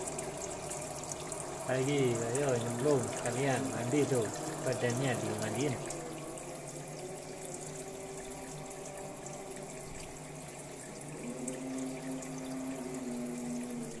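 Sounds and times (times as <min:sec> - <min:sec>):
low steady hum: 0:00.0 - 0:14.0
tap water running into sink: 0:00.0 - 0:14.0.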